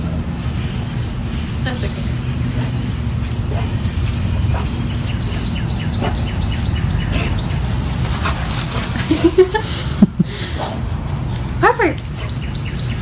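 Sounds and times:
insects trilling: 0.0 - 13.0
bird chirps: 3.6 - 9.4, 12.1 - 13.0.

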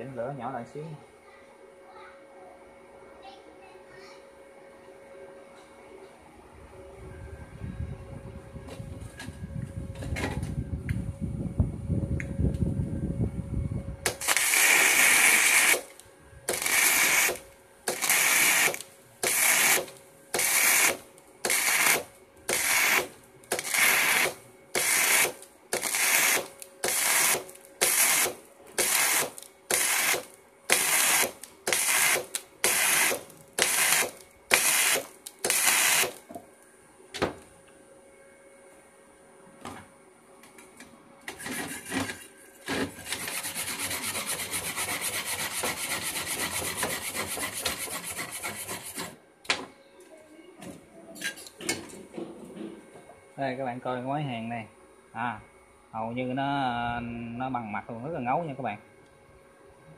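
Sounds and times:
welding arc bursts: 14.1 - 36.2.

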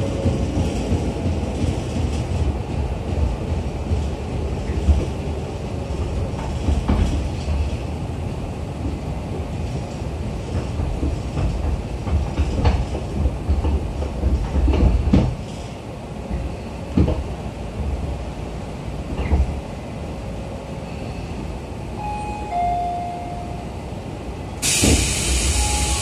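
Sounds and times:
train car low rumble: 0.0 - 26.0
wheels clacking over rail joints: 8.8 - 18.2.

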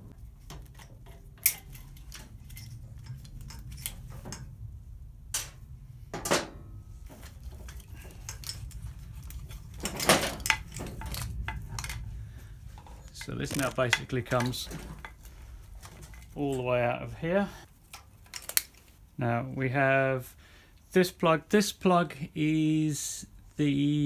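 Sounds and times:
plastic connectors clicking and rattling: 7.1 - 12.1, 12.8 - 16.4, 17.9 - 18.9.

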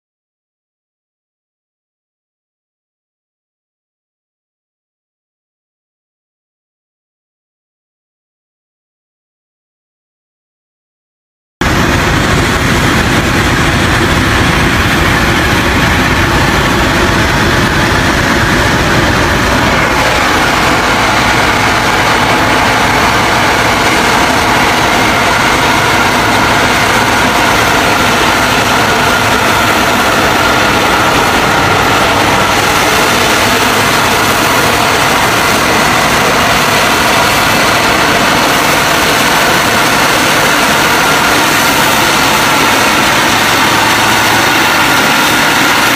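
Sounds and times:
heavy truck engine running: 11.6 - 45.9
steady whine: 11.6 - 45.9.

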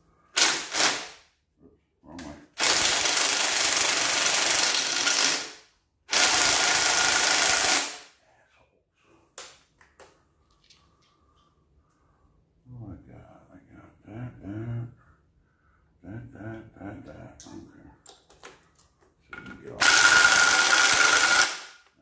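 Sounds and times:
cordless impact wrench hammering: 19.8 - 21.9.

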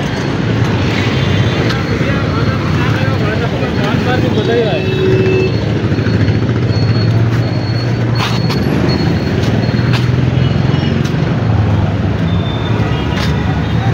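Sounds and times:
motorcycle and car engines droning: 0.0 - 13.9.

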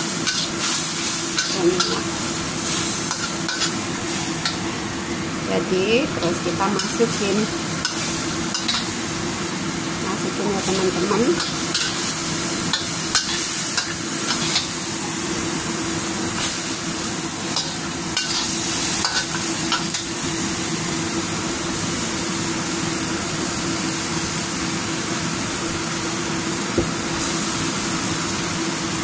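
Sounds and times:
chicken sizzling in a wok: 0.0 - 29.0.

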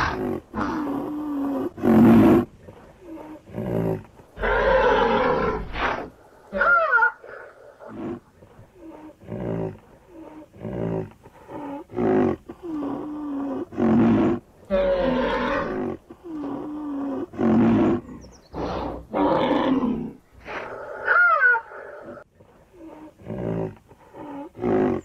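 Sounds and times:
rhinoceros calling: 0.0 - 25.0.

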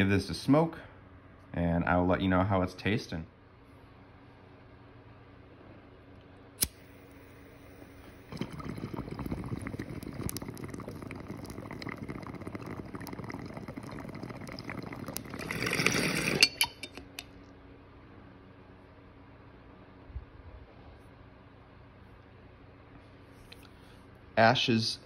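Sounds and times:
lighter click: 6.6 - 7.1
water bubbling through bong: 7.7 - 16.9.

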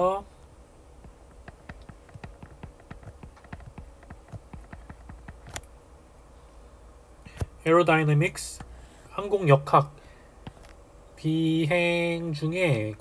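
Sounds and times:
stylus tapping on glass screen: 1.0 - 5.6.

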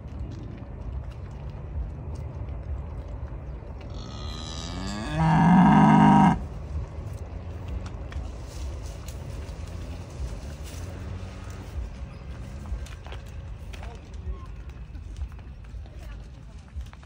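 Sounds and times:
cow mooing: 3.9 - 6.4.

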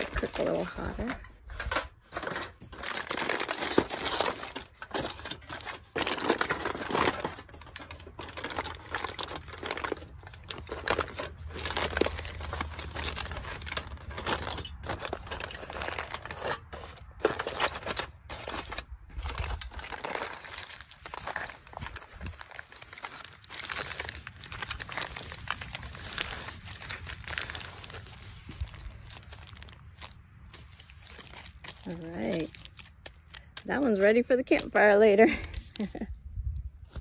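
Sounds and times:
aluminium foil crinkling: 0.0 - 36.1.

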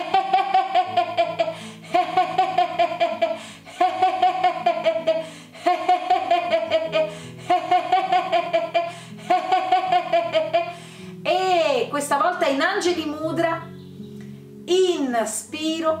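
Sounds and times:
woman laughing in rhythmic bursts: 0.0 - 10.8
soft background music: 0.0 - 16.0.

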